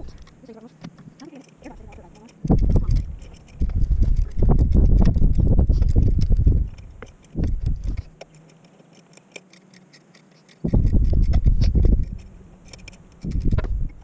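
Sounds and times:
hand tools clicking on metal: 0.0s - 14.0s
wind gusts on microphone: 1.7s - 8.1s, 10.6s - 14.0s.

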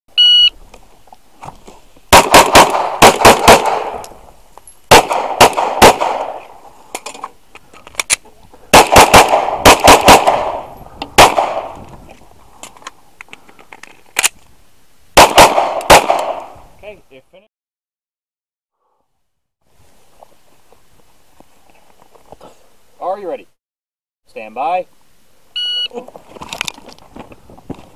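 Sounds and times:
shot timer beep: 0.2s - 0.5s, 25.6s - 25.9s
pistol shots: 2.1s - 4.0s, 4.9s - 6.5s, 8.7s - 11.8s, 15.2s - 16.5s.

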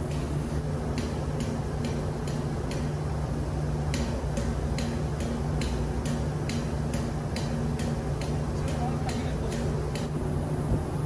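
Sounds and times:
engine-room machinery hum: 0.0s - 11.0s
regular light clicking: 3.9s - 10.1s.

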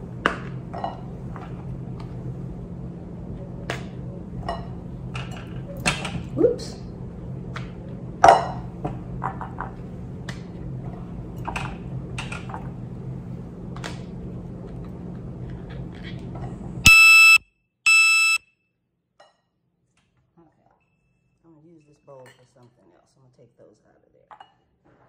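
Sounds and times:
electronic beeps: 16.9s - 18.4s.

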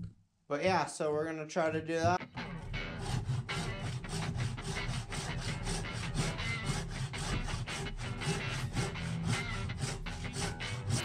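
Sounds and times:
handsaw cutting wood: 2.4s - 11.0s.

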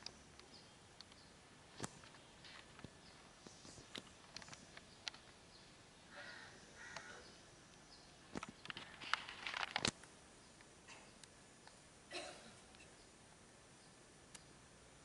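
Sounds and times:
crow cawing: 6.1s - 7.4s.

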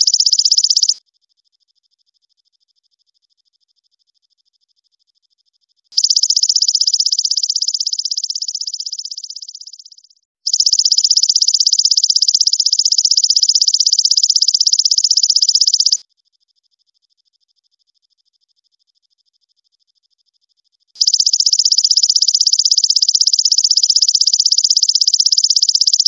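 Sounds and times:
katydid buzzing trill: 0.0s - 1.0s, 10.5s - 16.0s, 21.0s - 26.0s.

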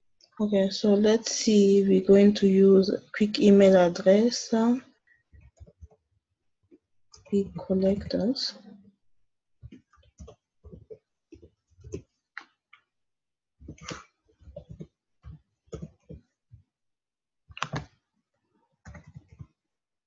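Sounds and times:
keyboard typing: 9.6s - 12.5s, 13.6s - 16.3s, 17.5s - 17.9s, 18.8s - 19.6s.

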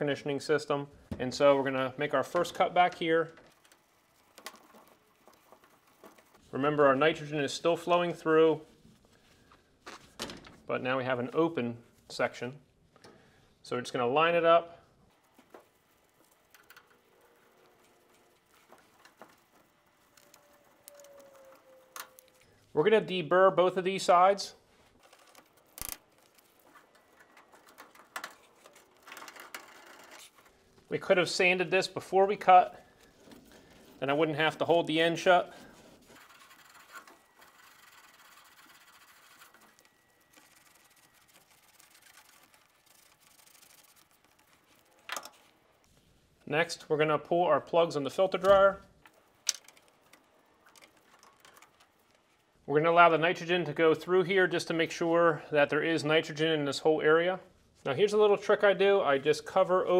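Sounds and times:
faint thin tone: 20.1s - 22.6s.

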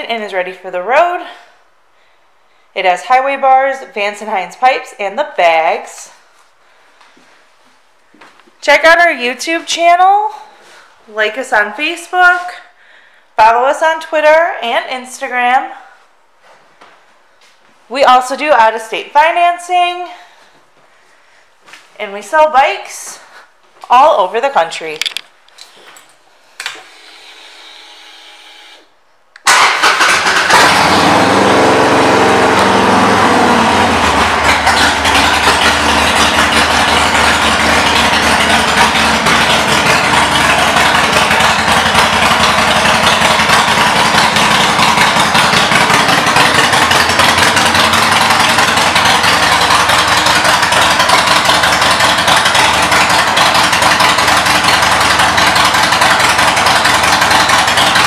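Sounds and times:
faint starter whine: 25.5s - 31.3s
motorcycle engine starting and idling: 26.7s - 58.0s.

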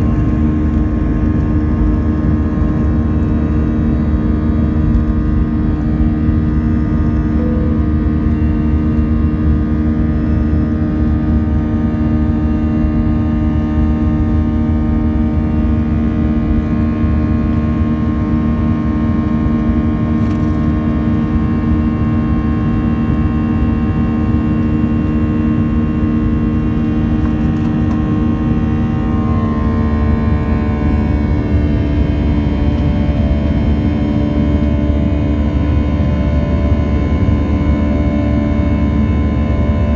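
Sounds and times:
jet engine droning in cabin: 0.0s - 39.9s.

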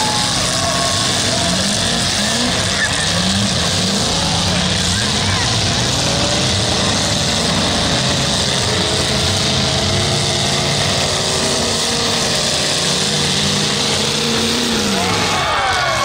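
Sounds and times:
car engines running: 0.0s - 16.0s
crowd noise: 0.0s - 16.0s.

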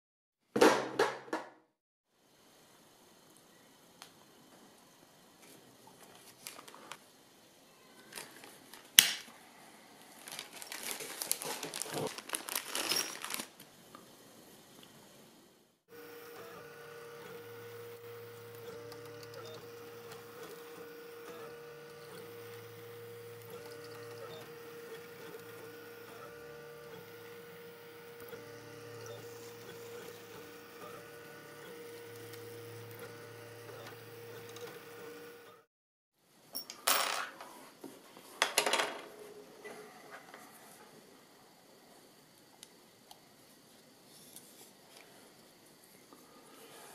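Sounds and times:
plastic bag crinkling: 10.0s - 13.6s
constant hum: 15.9s - 35.6s
stepper motors whirring: 15.9s - 35.7s.

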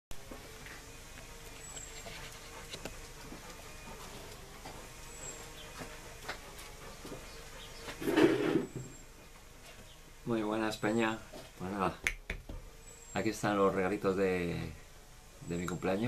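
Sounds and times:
chair scraping on table: 7.8s - 9.0s.

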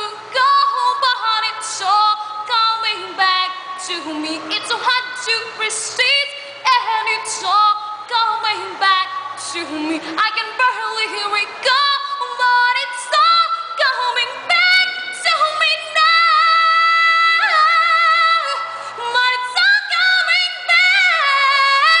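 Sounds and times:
woman singing a cappella: 0.0s - 22.0s.

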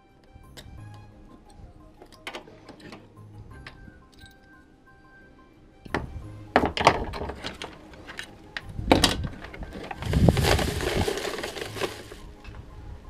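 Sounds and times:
plastic bag rustling: 9.3s - 12.4s.

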